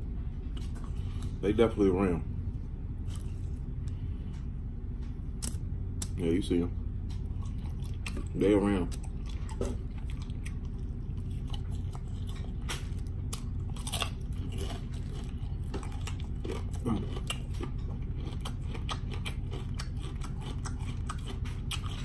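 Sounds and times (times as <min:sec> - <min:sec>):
steady low hum: 0:00.0 - 0:22.0
close chewing and crunching: 0:00.4 - 0:01.8, 0:02.9 - 0:06.4, 0:07.0 - 0:22.0.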